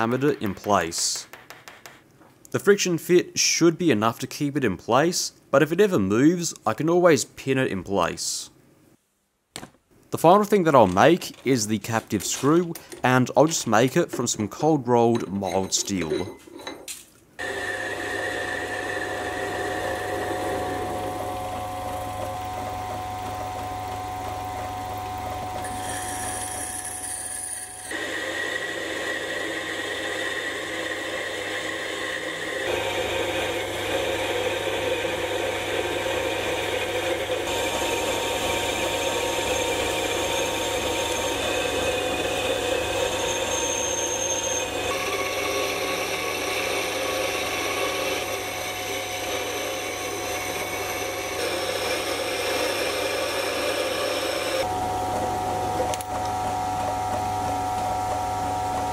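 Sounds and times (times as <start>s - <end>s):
metal lathe cutting steel: 17.4s - 23.7s, 27.8s - 54.7s.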